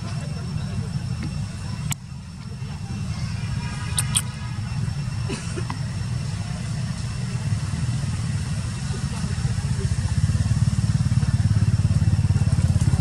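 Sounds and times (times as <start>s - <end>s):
low engine rumble: 0.0s - 13.0s
short high clicks: 3.9s - 4.3s.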